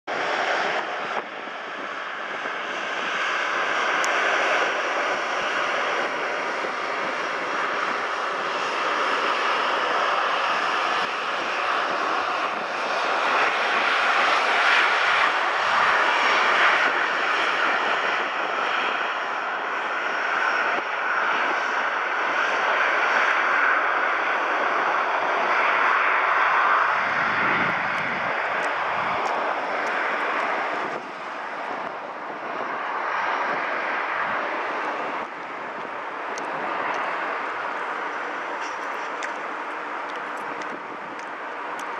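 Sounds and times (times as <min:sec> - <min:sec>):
jet engines running: 0:00.1 - 0:41.9
deep rumble: 0:26.4 - 0:41.9.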